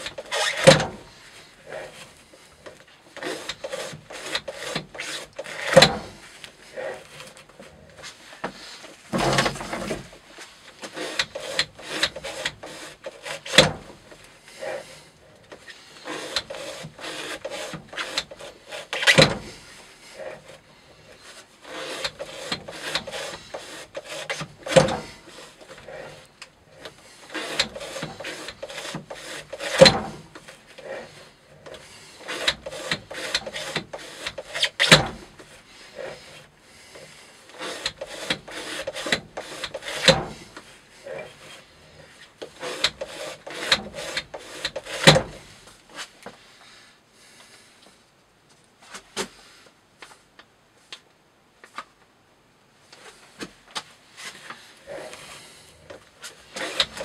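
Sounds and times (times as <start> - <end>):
knife slicing rope: 3.2 - 6.2, 10.8 - 15.0, 15.7 - 19.6, 21.2 - 35.2.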